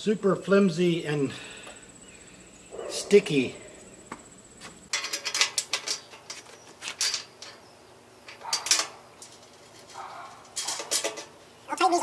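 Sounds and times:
sheet metal clanking and rattling: 4.9s - 7.6s, 8.2s - 11.4s.

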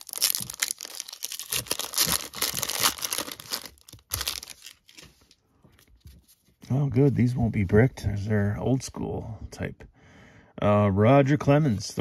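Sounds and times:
foil wrapper tearing and crinkling: 0.0s - 5.0s.

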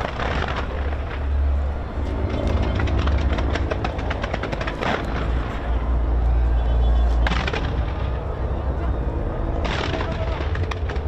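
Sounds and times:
fireworks crackling pops: 0.0s - 1.5s, 2.3s - 5.8s, 7.1s - 8.2s, 9.6s - 11.0s
fireworks booming: 0.0s - 6.0s, 6.8s - 8.3s, 9.5s - 11.0s.

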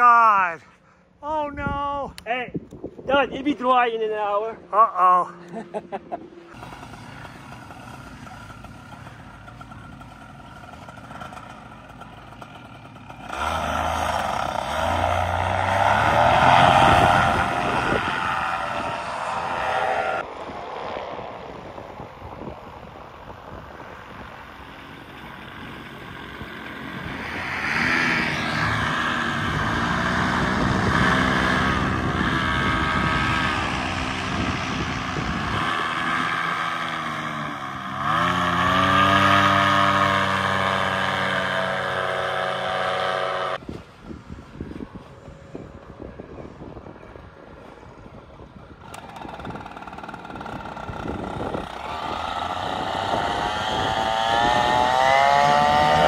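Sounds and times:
paraglider engine and propeller: 0.1s - 56.0s.

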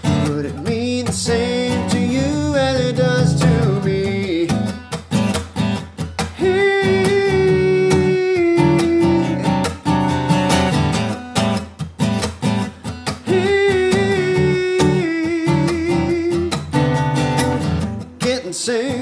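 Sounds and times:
acoustic guitar strumming: 0.0s - 19.0s
man singing long notes: 0.4s - 4.6s, 6.4s - 9.6s, 13.2s - 16.5s.

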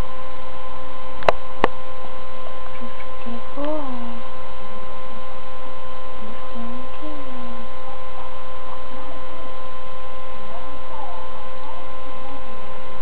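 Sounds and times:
loud steady hum: 0.0s - 13.0s
faint voices: 2.7s - 4.4s, 6.2s - 13.0s.

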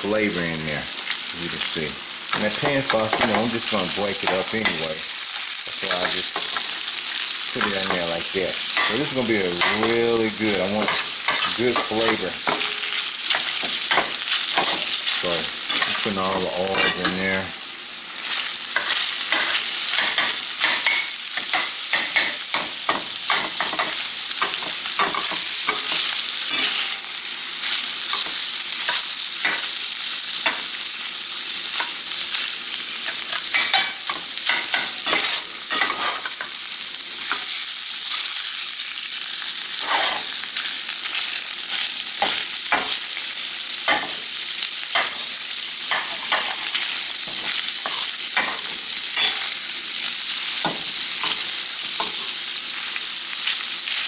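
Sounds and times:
meat sizzling in a skillet: 0.0s - 54.0s
metal spoon scraping a pan: 8.8s - 17.2s, 18.3s - 29.8s, 33.0s - 36.6s, 39.7s - 40.4s, 45.9s - 49.6s.

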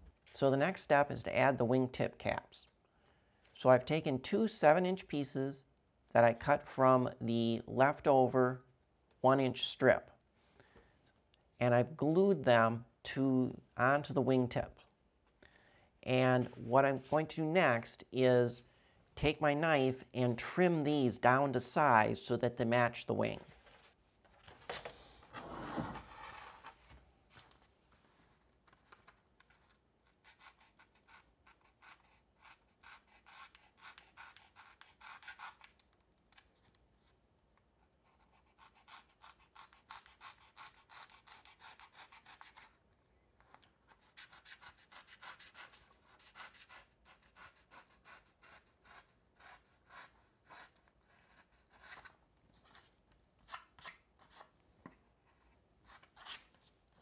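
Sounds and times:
knife scraping foam board: 30.1s - 35.8s, 38.1s - 42.8s, 43.5s - 52.9s.

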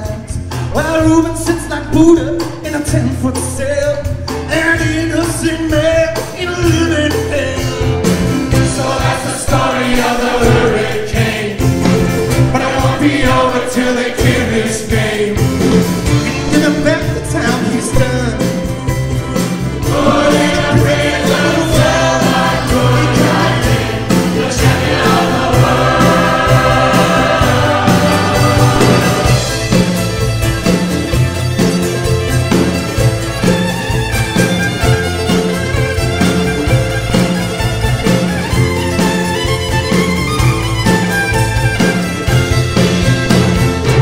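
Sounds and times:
acoustic guitar: 0.0s - 44.0s
violin: 6.4s - 44.0s
large choir singing: 8.4s - 16.1s, 19.8s - 30.0s.

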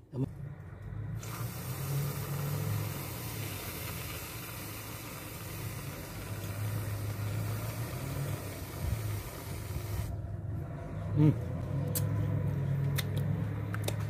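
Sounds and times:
low hum: 0.0s - 4.0s, 8.3s - 14.0s
aerosol can hissing: 1.2s - 10.2s.

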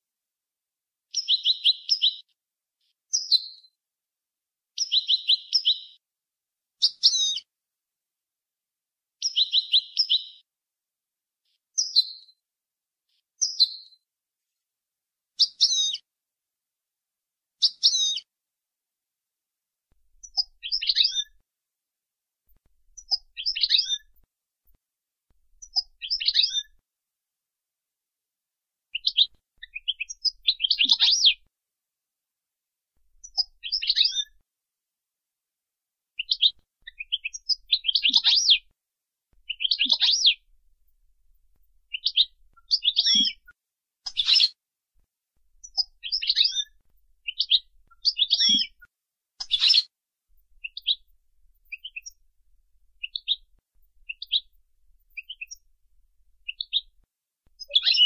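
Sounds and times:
goldfinch twittering song: 9.2s - 10.4s, 20.2s - 21.4s, 22.9s - 24.2s, 25.6s - 26.8s, 28.9s - 31.4s, 33.2s - 34.4s, 36.2s - 38.7s, 39.4s - 40.6s, 41.9s - 43.5s, 44.1s - 44.6s, 45.6s - 52.3s, 52.9s - 55.7s, 56.3s - 57.0s, 57.6s - 58.0s.

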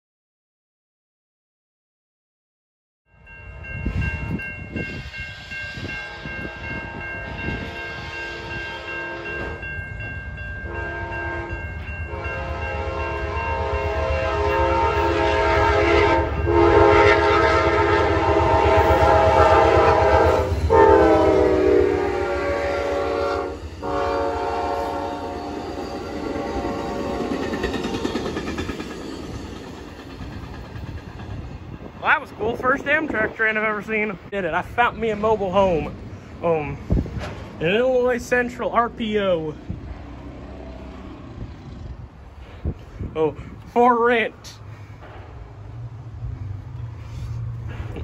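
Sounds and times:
train passing rumble: 3.1s - 48.0s
train horn blasts: 4.7s - 9.6s, 10.6s - 27.4s.

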